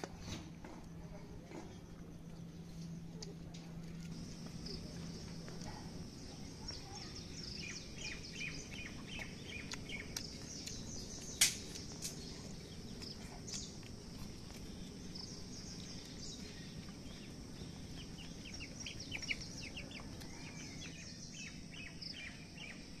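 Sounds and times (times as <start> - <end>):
small birds chirping: 0.0 - 23.0
sharp click: 10.7 - 12.2.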